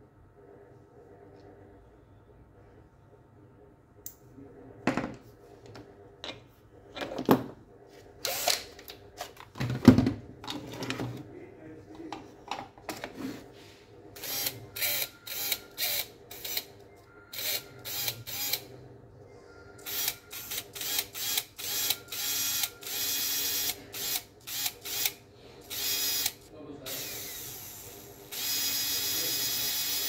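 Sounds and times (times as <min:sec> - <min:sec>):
small electric motor spinning: 0:14.2 - 0:16.7, 0:17.3 - 0:18.7, 0:19.8 - 0:30.0.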